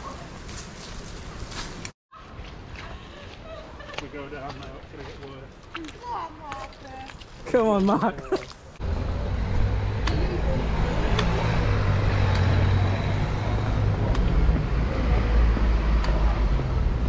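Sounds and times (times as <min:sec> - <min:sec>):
low street rumble: 0:07.4 - 0:17.0.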